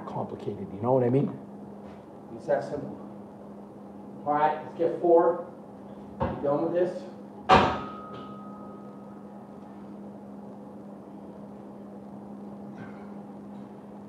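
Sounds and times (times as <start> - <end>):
steady low hum: 0.0 - 14.0
steel bar clanking and ringing: 7.7 - 9.0.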